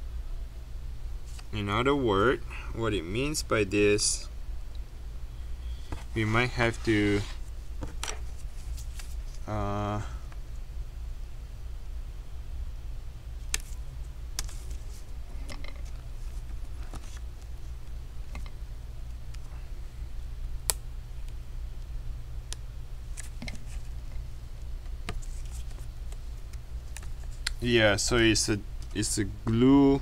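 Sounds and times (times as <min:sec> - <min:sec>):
steady low hum: 0:00.0 - 0:30.0.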